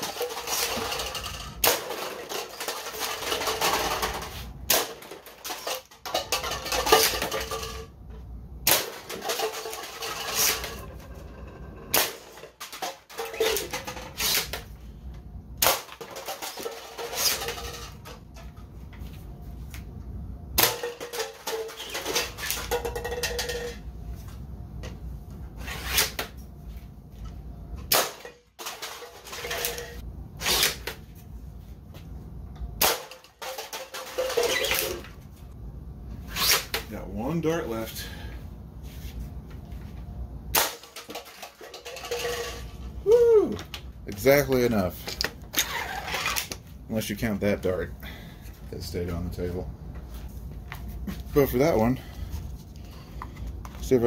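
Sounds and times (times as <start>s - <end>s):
plastic cups clattering: 0.0s - 7.9s, 8.8s - 14.6s, 15.7s - 18.2s, 20.7s - 23.8s, 28.1s - 30.0s, 32.9s - 35.1s, 40.6s - 42.9s.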